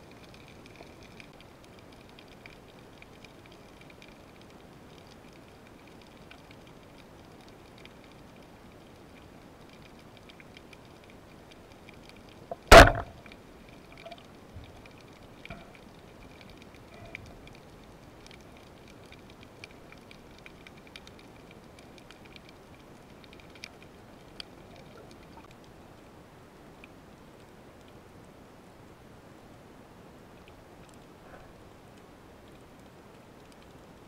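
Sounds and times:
faint underwater clicks: 0:00.0 - 0:26.1, 0:26.7 - 0:29.0, 0:30.3 - 0:34.0
low water hiss: 0:00.0 - 0:34.0
speargun firing crack: 0:12.7 - 0:13.1.

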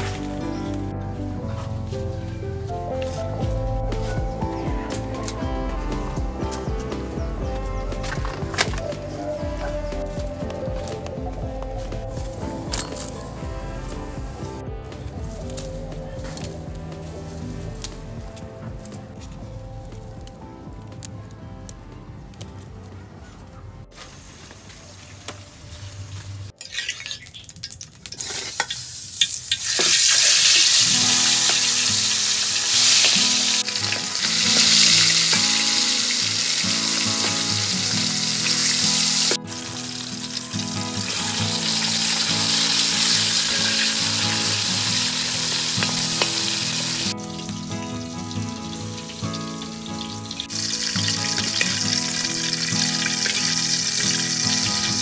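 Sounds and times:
fish sizzling in hot oil: 0:26.6 - 0:55.0.

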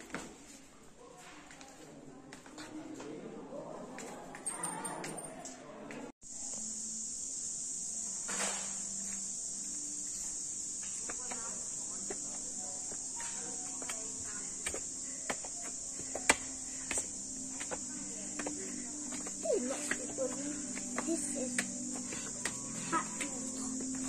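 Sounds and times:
high-pitched insect chorus: 0:06.3 - 0:24.0.

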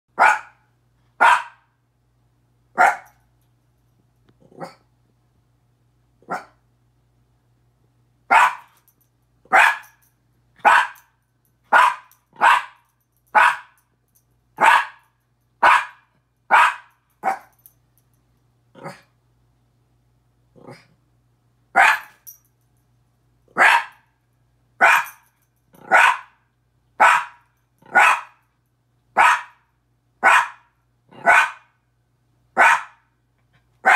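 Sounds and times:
small dog barking: 0:00.2 - 0:01.7, 0:02.8 - 0:03.2, 0:04.5 - 0:04.9, 0:06.2 - 0:06.6, 0:08.3 - 0:08.8, 0:09.5 - 0:10.0, 0:10.6 - 0:11.1, 0:11.7 - 0:13.8, 0:14.6 - 0:17.6, 0:21.8 - 0:22.2, 0:23.5 - 0:24.1, 0:24.8 - 0:25.2, 0:25.8 - 0:26.4, 0:27.0 - 0:28.4, 0:29.1 - 0:31.8, 0:32.6 - 0:33.1.

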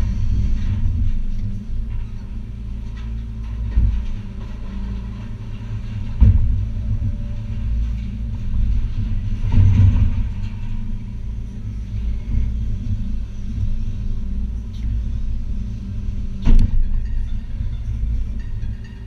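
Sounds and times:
heavy thump with clatter: 0:03.4 - 0:07.3, 0:08.3 - 0:10.8, 0:16.4 - 0:17.1.

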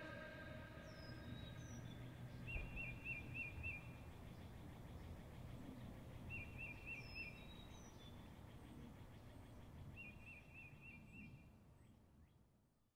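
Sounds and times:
bird singing high notes: 0:00.0 - 0:03.8.

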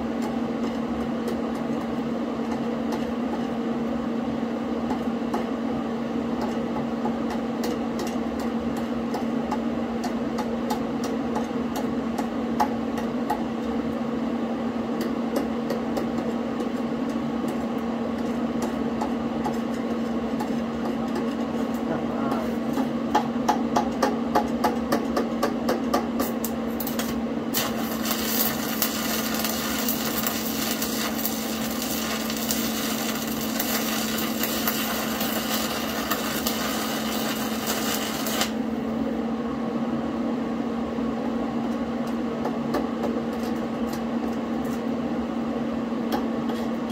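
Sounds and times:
welding arc crackling hiss: 0:26.8 - 0:38.7
welder humming: 0:26.8 - 0:38.8.

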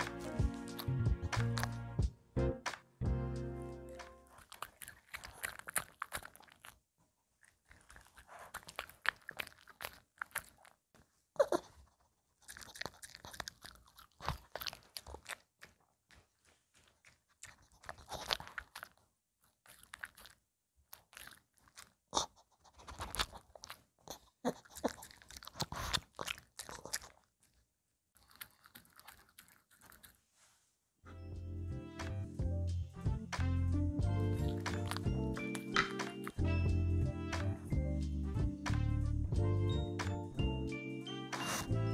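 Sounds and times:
dog chewing and crunching food: 0:00.0 - 0:02.0, 0:04.0 - 0:30.3, 0:34.0 - 0:36.8, 0:41.1 - 0:41.9.

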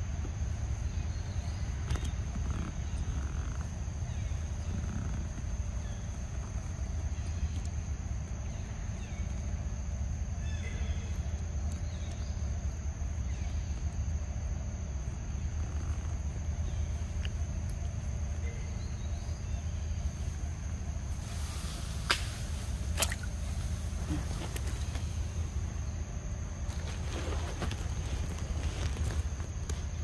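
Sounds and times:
high insect drone: 0:00.0 - 0:30.0
faint bird chirps: 0:00.7 - 0:21.0.

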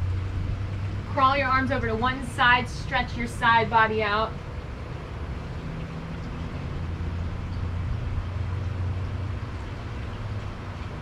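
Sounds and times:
low steady rumble: 0:00.0 - 0:11.0.

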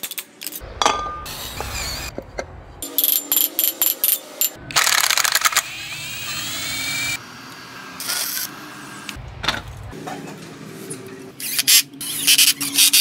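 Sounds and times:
mechanical workshop noises: 0:00.0 - 0:13.0
electric drill whine: 0:04.7 - 0:08.6.

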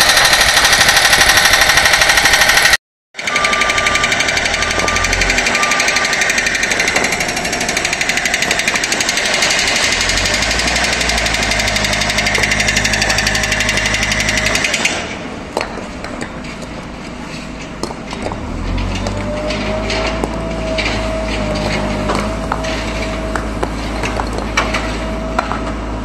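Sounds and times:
mechanical hammering: 0:00.0 - 0:16.4
diesel engine running: 0:00.0 - 0:26.0.

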